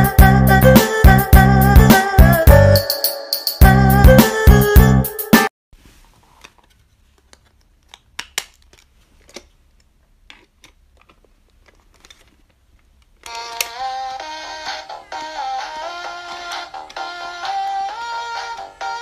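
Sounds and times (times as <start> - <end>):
bright melody: 0.0 - 5.5, 13.3 - 19.0.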